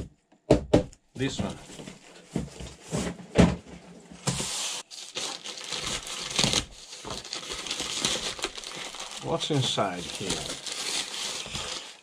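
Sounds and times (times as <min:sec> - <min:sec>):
plastic bag tearing: 0:04.7 - 0:12.0
plastic crinkling: 0:04.8 - 0:12.0.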